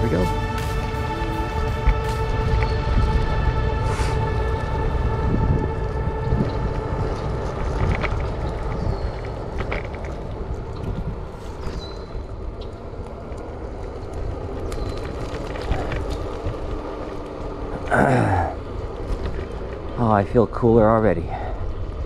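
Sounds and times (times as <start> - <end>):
low road rumble: 0.0 - 22.0
wind rushing over microphone: 0.0 - 22.0
scooter clicks and rattles: 6.4 - 17.8.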